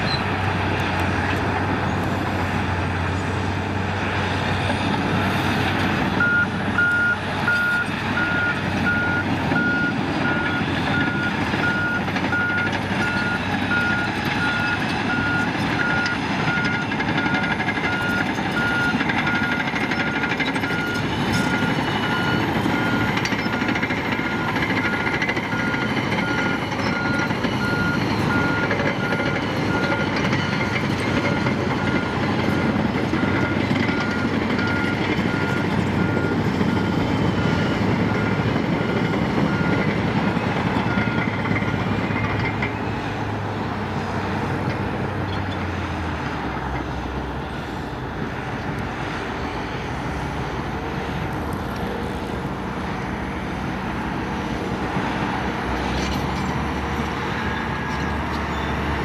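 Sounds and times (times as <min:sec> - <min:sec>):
bulldozer diesel engine under load: 0:00.0 - 0:59.0
reversing alarm beeping: 0:06.2 - 0:40.0, 0:40.8 - 0:42.3.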